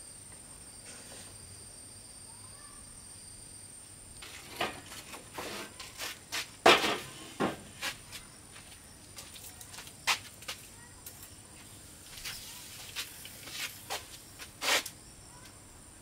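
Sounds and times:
wooden boards knocking and scraping: 0:06.6 - 0:07.7.

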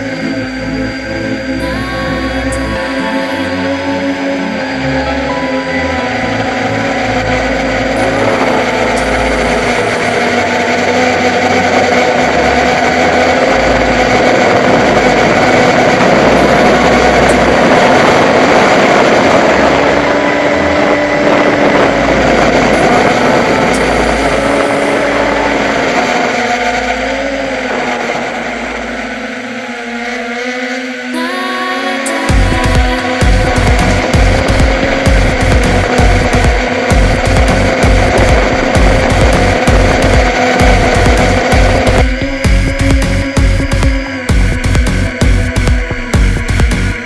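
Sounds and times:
quadcopter buzzing hum: 0:00.0 - 0:47.0.

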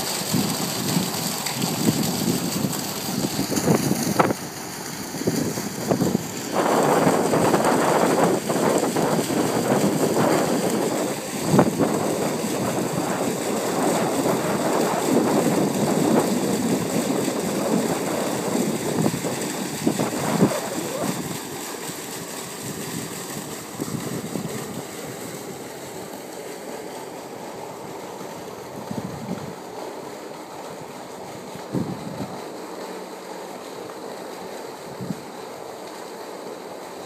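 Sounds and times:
wind buffeting microphone: 0:00.2 - 0:21.4, 0:22.6 - 0:25.5, 0:28.3 - 0:29.7, 0:30.8 - 0:32.4.

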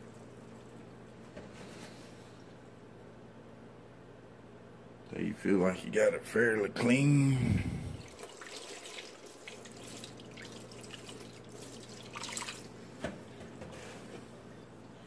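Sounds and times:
water trickling and dripping: 0:08.0 - 0:12.7.

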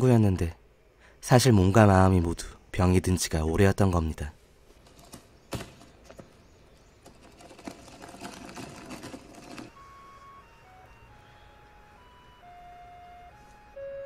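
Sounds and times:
suitcase wheels rattling on pavement: 0:04.8 - 0:09.9
faint held tones: 0:09.7 - 0:14.0.

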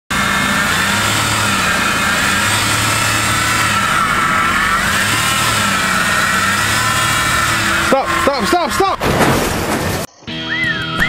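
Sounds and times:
minivan engine running: 0:00.0 - 0:10.1.

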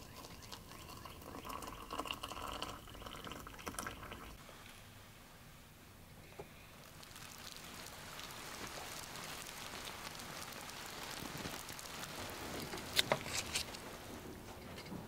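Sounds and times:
rain pattering: 0:00.0 - 0:04.6, 0:06.4 - 0:15.0.

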